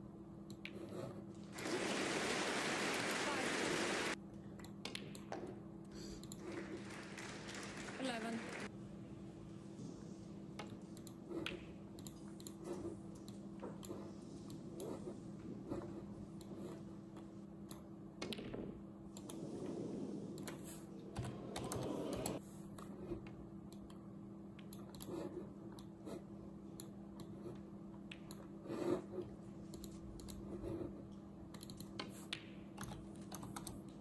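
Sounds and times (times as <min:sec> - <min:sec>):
steady low hum: 0:04.0 - 0:34.0
computer keyboard typing: 0:31.5 - 0:32.2, 0:32.8 - 0:33.9.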